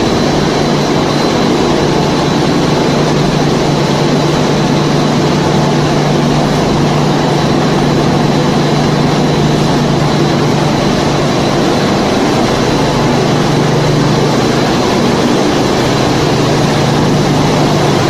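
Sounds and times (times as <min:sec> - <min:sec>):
high whine: 0:00.0 - 0:18.0
low hum: 0:00.0 - 0:18.0
production line machinery running: 0:00.0 - 0:18.0.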